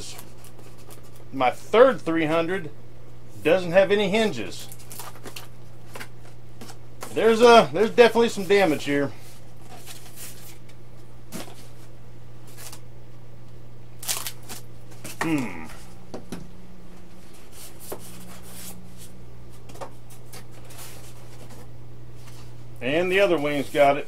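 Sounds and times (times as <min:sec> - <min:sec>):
steady low hum: 0:00.0 - 0:24.0
foam packaging rustling: 0:04.5 - 0:12.9, 0:14.0 - 0:15.2, 0:17.2 - 0:24.0.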